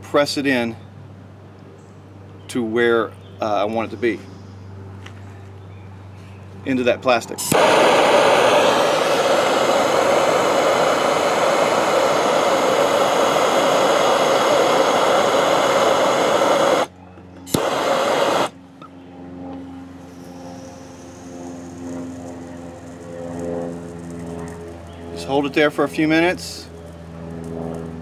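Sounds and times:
gas torch hissing: 0:07.4 - 0:16.9, 0:17.5 - 0:18.6
torch igniter click: 0:07.4 - 0:16.9, 0:17.5 - 0:18.5.

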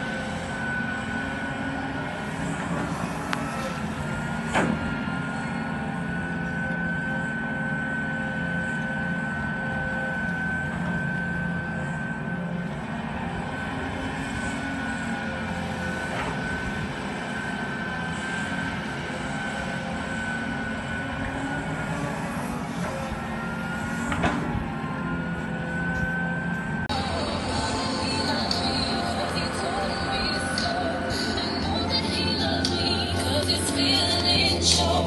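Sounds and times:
excavator diesel engine running: 0:00.0 - 0:35.0
high whine: 0:00.0 - 0:35.0.

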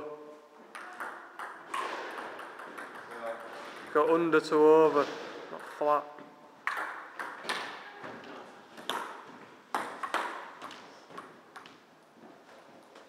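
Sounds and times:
table tennis ball hits: 0:00.7 - 0:04.2, 0:06.6 - 0:08.2, 0:08.8 - 0:11.8.

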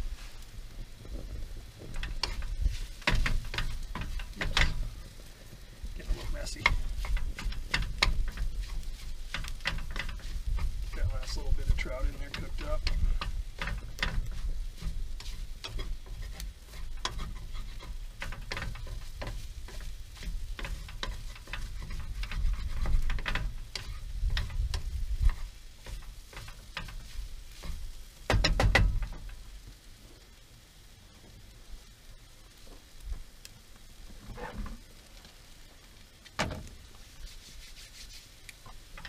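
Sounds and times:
food sizzling: 0:00.0 - 0:39.0
wooden spatula scraping pan: 0:01.7 - 0:05.1, 0:05.9 - 0:28.7, 0:34.2 - 0:34.8.

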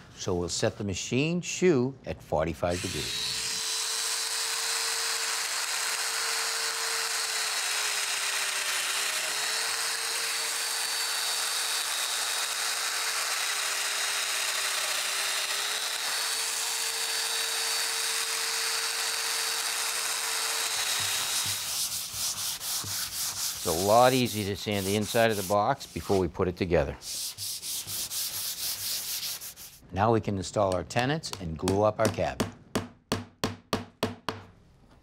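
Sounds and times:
joiner machine cutting plywood: 0:02.8 - 0:26.2.

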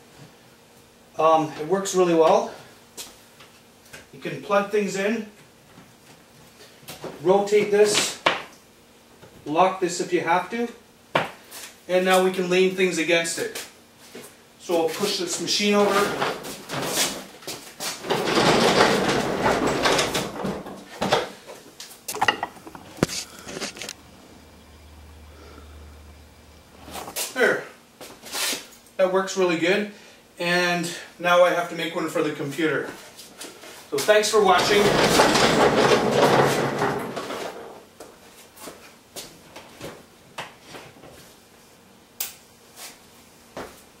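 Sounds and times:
cart on casters rolling: 0:15.1 - 0:21.2, 0:34.0 - 0:37.8
cart knocking against wall: 0:18.1 - 0:21.2, 0:34.6 - 0:37.8.

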